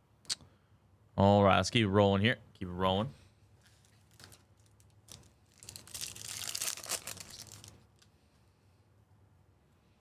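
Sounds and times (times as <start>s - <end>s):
foil wrapper tearing and crinkling: 3.7s - 7.8s.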